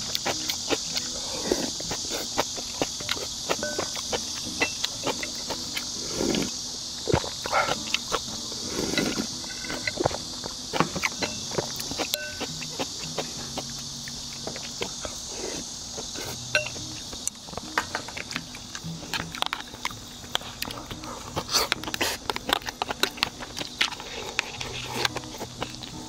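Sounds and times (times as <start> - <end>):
faint music: 0.0 - 26.0
high-pitched hiss: 0.0 - 26.0
chopsticks tapping a bowl: 16.5 - 16.9.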